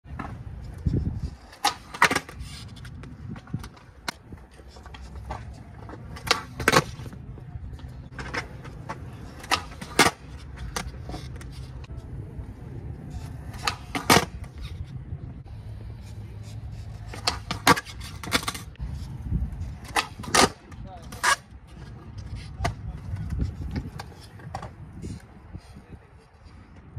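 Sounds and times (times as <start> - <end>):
skateboard wooden clacks: 0.1 - 7.2, 7.8 - 11.9, 13.1 - 14.8, 17.0 - 18.8, 19.7 - 25.7
skateboard wheels rolling: 0.1 - 26.9.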